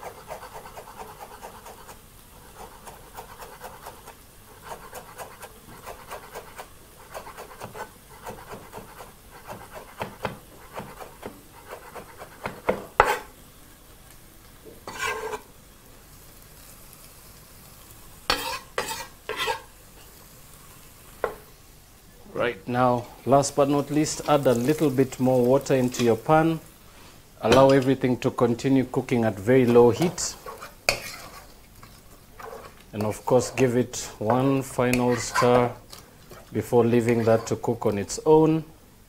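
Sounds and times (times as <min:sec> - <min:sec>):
knife scraping board: 0:00.0 - 0:13.3, 0:14.8 - 0:15.5, 0:18.3 - 0:19.7, 0:30.0 - 0:32.8, 0:34.9 - 0:35.7
knife chopping on wooden board: 0:02.8 - 0:13.3.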